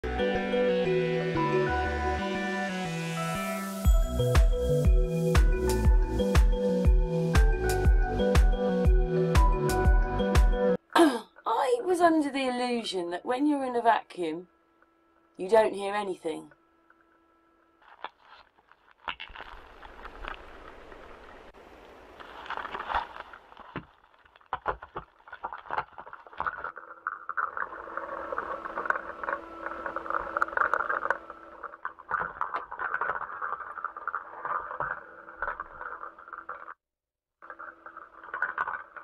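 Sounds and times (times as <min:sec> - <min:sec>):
steady hum: 0:27.6 - 0:33.7.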